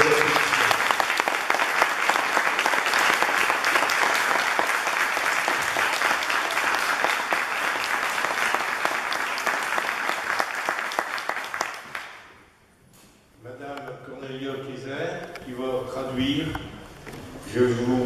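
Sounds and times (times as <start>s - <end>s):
crowd applauding: 0.0s - 12.3s.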